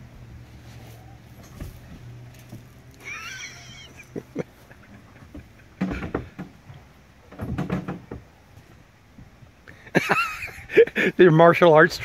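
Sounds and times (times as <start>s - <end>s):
sharp knocks on boat: 5.3s - 6.6s, 7.4s - 8.3s.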